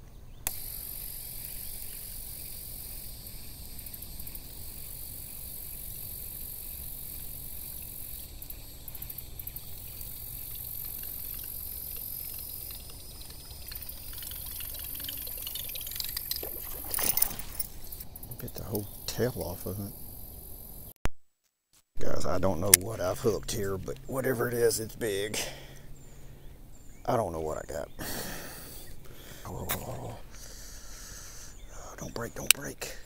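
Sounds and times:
high insect drone: 0.3s - 20.9s, 22.0s - 33.0s
water splashing: 10.5s - 18.0s.

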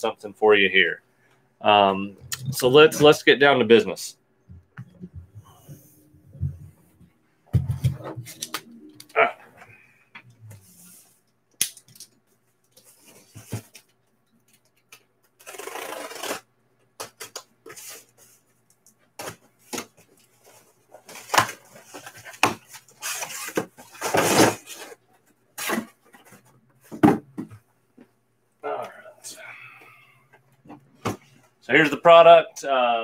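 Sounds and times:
tape being cut: 15.4s - 16.4s.

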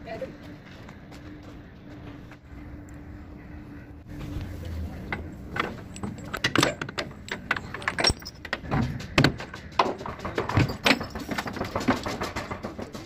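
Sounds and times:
heavy chain rattling on metal latch: 5.5s - 13.0s.

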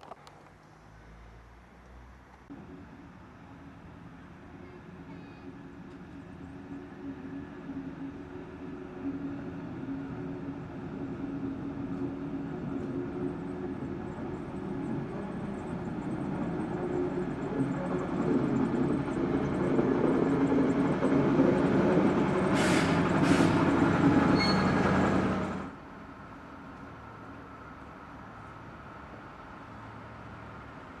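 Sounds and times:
diesel locomotive engine droning: 2.5s - 31.0s
short sharp noises from train: 22.4s - 25.7s.

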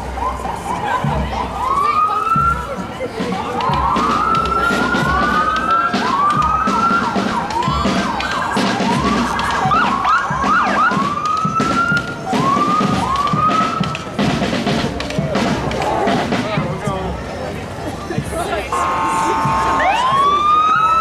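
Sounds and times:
emergency vehicle siren: 0.0s - 14.4s, 18.7s - 21.0s.

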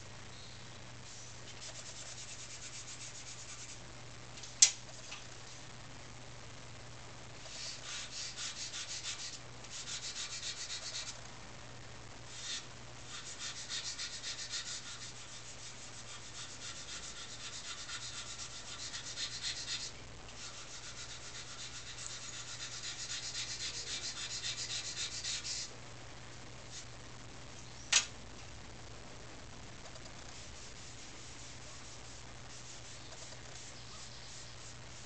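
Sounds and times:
charcoal scratching on paper: 1.5s - 3.8s, 7.4s - 11.2s, 12.3s - 25.7s, 30.2s - 35.0s
sharp click: 27.9s - 28.1s.

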